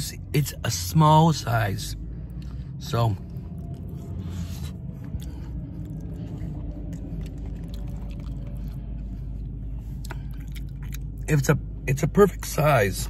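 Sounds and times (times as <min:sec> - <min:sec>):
low car cabin rumble: 0:00.0 - 0:13.0
person chewing food: 0:03.4 - 0:11.3.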